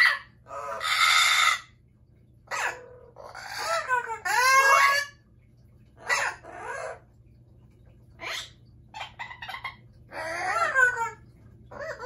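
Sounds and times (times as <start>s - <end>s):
parrot calling: 0.0s - 1.8s, 2.4s - 5.2s, 6.0s - 7.2s, 8.2s - 12.0s.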